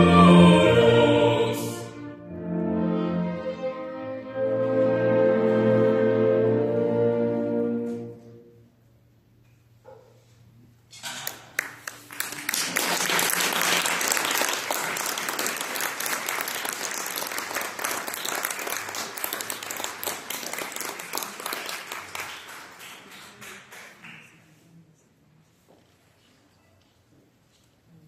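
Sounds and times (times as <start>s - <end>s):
audience applauding: 11.3s - 24.4s.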